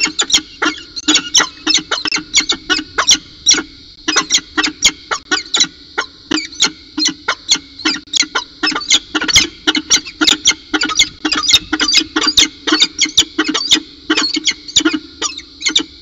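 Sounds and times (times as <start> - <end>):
falcons calling in sharp chips: 0.0 - 15.9.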